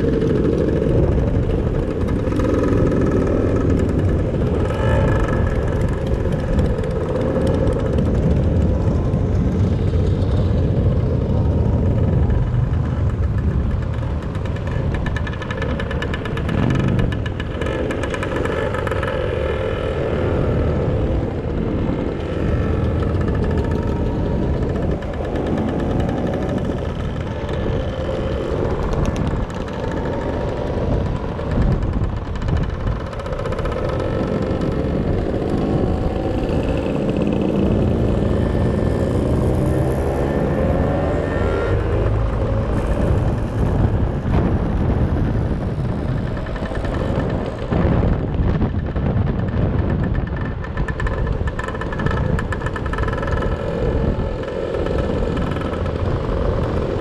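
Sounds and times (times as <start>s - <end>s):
motor scooter engine running: 0.0s - 57.0s.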